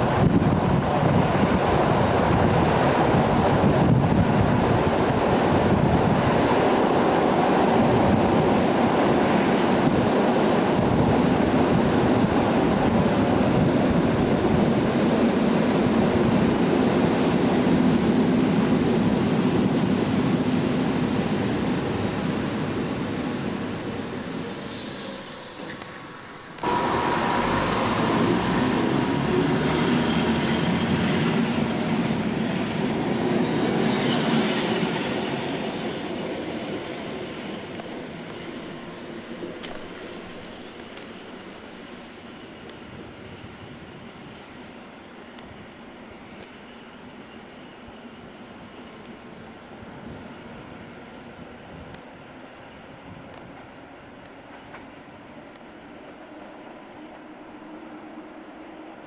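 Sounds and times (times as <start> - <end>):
wind on microphone: 0.0 - 23.0
train wheels rushing on rail: 0.0 - 59.0.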